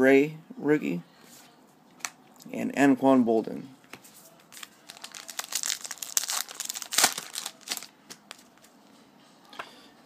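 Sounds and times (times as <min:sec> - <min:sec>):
wrapper crinkling and tearing: 0:04.5 - 0:08.7.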